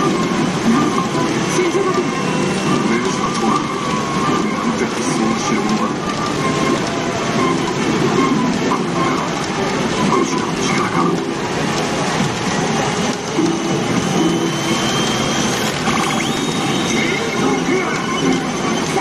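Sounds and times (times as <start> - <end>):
pachinko machine noise: 0.0 - 19.0
thin high tone: 14.7 - 16.8
battle sound effects: 15.8 - 16.6.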